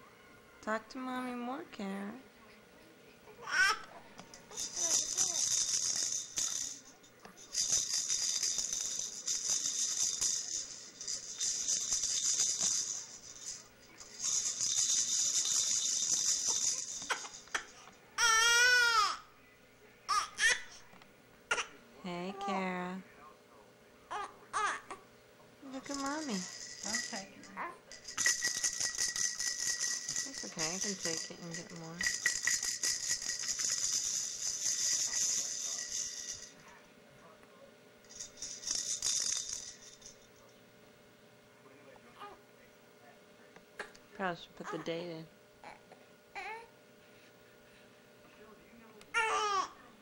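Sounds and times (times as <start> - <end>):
baby rattle shaking: 4.4 - 19.1, 25.6 - 36.6, 38.0 - 40.3
infant crying: 18.2 - 19.2.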